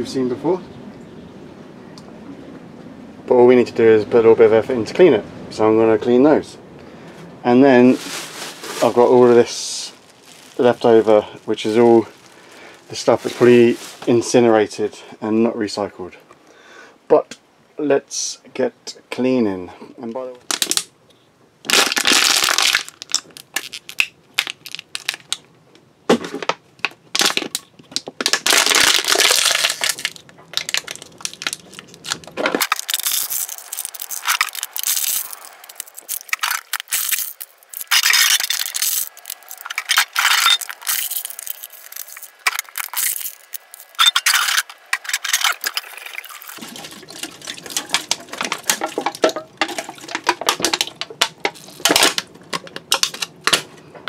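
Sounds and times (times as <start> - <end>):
plastic bottles and bags crinkling: 7.7 - 14.8, 20.4 - 20.9, 21.6 - 25.5, 26.1 - 53.8
metal cans clinking: 30.7 - 53.6.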